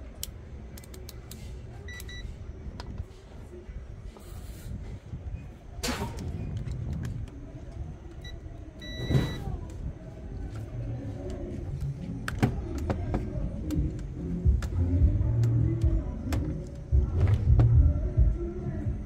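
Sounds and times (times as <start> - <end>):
steady low rumble: 0.0 - 19.0
short high beep: 8.8 - 9.4.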